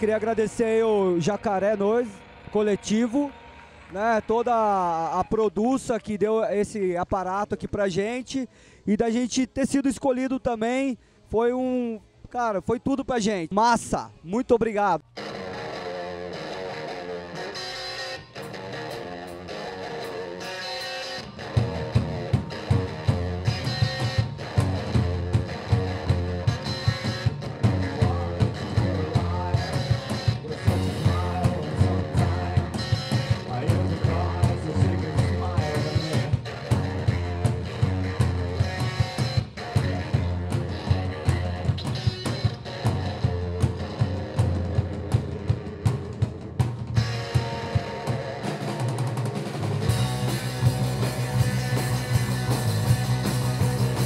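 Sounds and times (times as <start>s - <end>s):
rock band playing: 15.2s - 54.0s.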